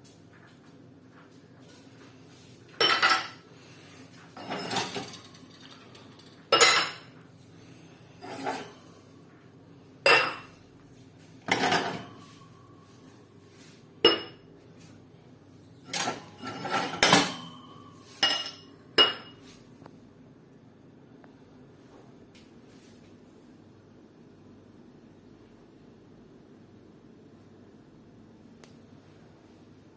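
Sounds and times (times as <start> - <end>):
glass tumblers clinking: 4.4 - 7.1.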